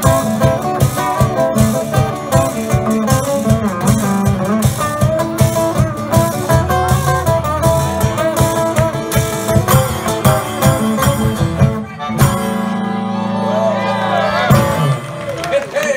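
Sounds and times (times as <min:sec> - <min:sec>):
steady drum beat: 0:00.0 - 0:12.6
picked acoustic guitars: 0:00.0 - 0:15.2.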